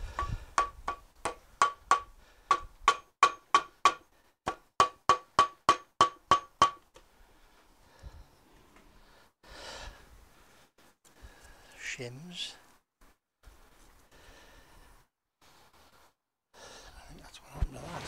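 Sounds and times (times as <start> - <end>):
hammer blows on metal: 0.0 - 4.0.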